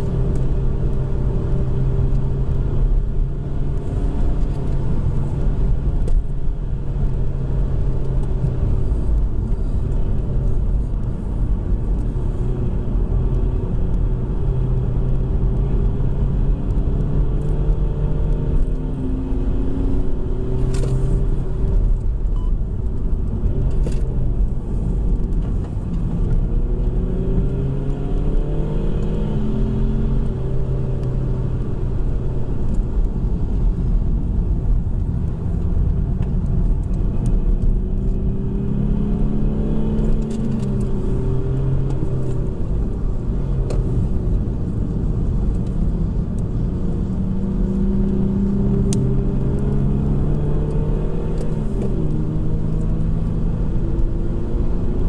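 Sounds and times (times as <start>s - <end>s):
car engine accelerating: 0.0s - 55.0s
road and tyre rumble: 0.0s - 55.0s.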